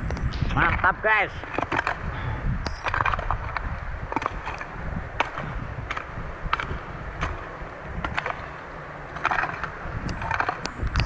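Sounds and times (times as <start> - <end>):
hoe chopping into soil: 4.1 - 10.6.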